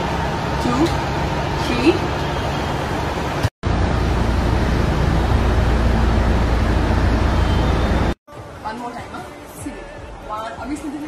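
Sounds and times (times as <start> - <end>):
loud steady rumbling: 0.0 - 8.2.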